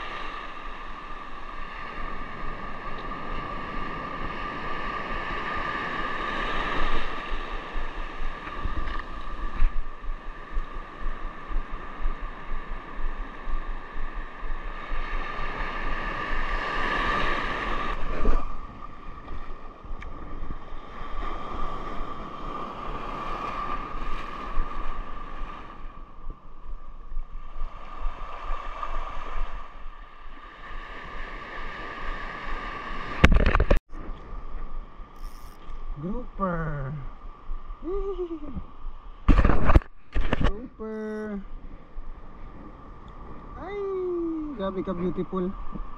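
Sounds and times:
surf washing over rocks: 0:00.0 - 0:25.9
wind buffeting microphone: 0:03.5 - 0:25.5
thin steady tone: 0:35.1 - 0:37.1
short loud crackle: 0:39.3 - 0:40.5.

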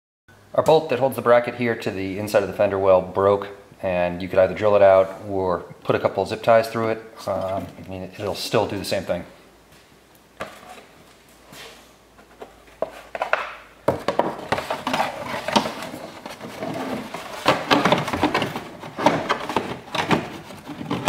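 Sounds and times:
plastic rustling and knocking: 0:10.4 - 0:11.0, 0:12.2 - 0:21.0.

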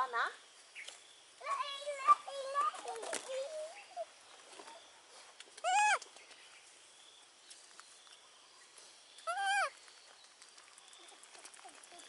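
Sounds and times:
baby monkey cooing: 0:05.6 - 0:06.0, 0:09.3 - 0:09.8.

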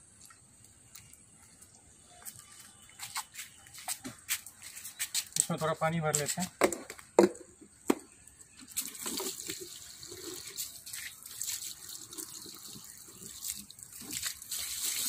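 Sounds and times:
water trickling into plastic bottle: 0:08.1 - 0:15.0.

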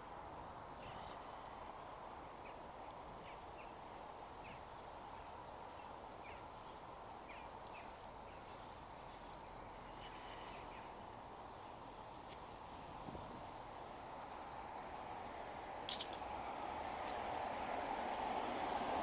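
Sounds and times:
small birds chirping: 0:00.8 - 0:12.4.

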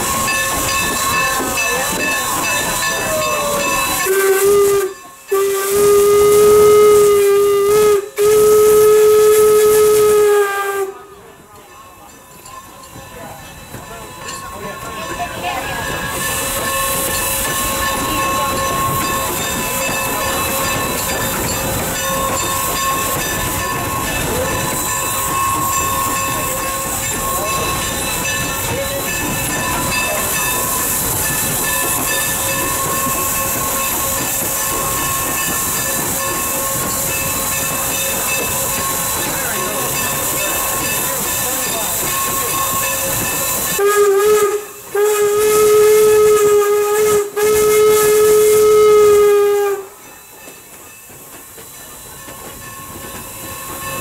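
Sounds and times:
steam locomotive running: 0:00.0 - 0:54.0
steam whistle blowing: 0:02.7 - 0:11.2, 0:42.2 - 0:50.0.

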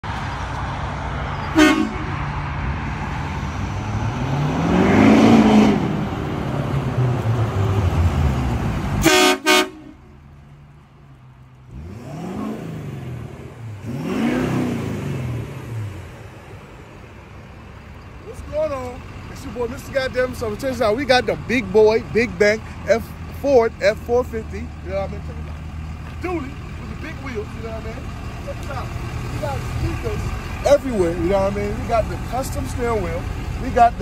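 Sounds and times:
diesel engine revving: 0:00.0 - 0:34.0
truck horn toots: 0:01.5 - 0:02.3, 0:09.0 - 0:10.1.

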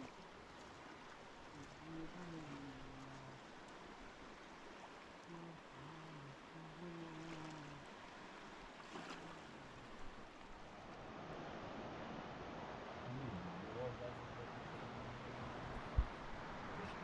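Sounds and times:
river water rushing: 0:00.0 - 0:17.0
low voices: 0:01.6 - 0:03.4, 0:05.3 - 0:07.8, 0:13.0 - 0:15.7.

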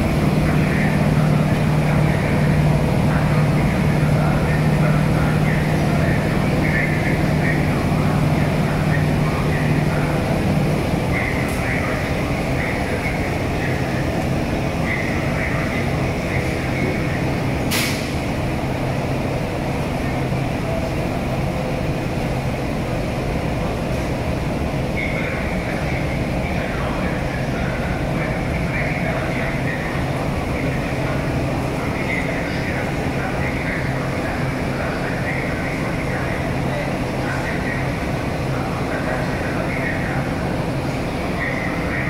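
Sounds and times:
locomotive equipment humming: 0:00.0 - 0:42.0
sharp click: 0:17.7 - 0:18.2.

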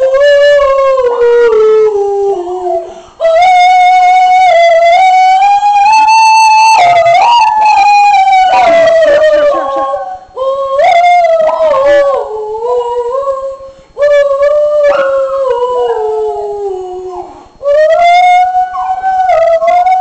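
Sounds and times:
dog howling: 0:05.9 - 0:12.4, 0:14.6 - 0:20.0.

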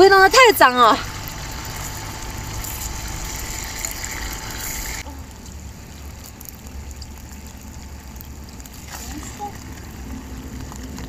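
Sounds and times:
food sizzling in a frying pan: 0:01.0 - 0:05.1.

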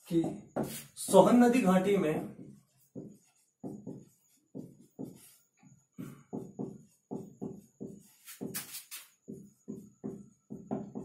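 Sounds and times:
short hiss: 0:08.2 - 0:09.2.

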